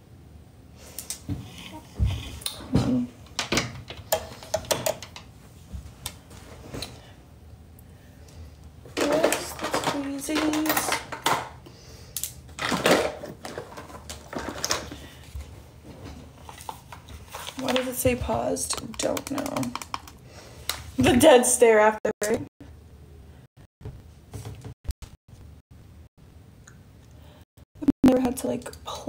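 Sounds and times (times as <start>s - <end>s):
small things clicking and clattering: 2.5s - 5.3s, 8.9s - 11.6s, 12.2s - 20.8s.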